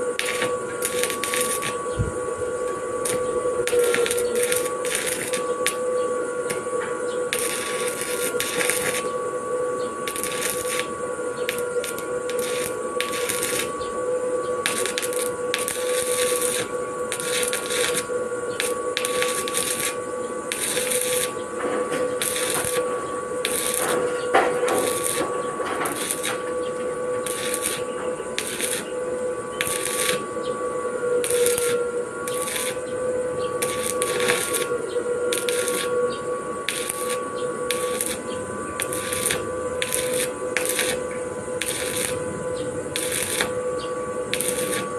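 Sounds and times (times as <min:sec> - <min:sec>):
welding arc crackling: 0:00.0 - 0:44.9
welding machine whine: 0:00.0 - 0:44.9.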